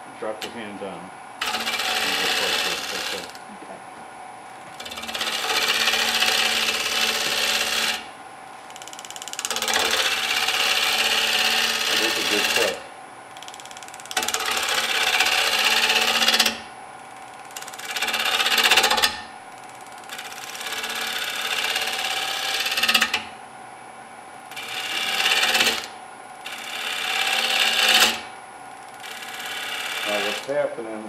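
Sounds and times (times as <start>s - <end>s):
gouge cutting wood on lathe: 1.4s - 3.3s, 4.8s - 8.1s, 9.4s - 12.8s, 14.1s - 16.6s, 17.6s - 19.1s, 20.0s - 23.2s, 24.5s - 28.3s, 29.0s - 30.6s
lathe motor hum: 1.4s - 3.5s, 4.6s - 8.1s, 8.8s - 16.5s, 19.7s - 23.2s, 24.5s - 30.6s.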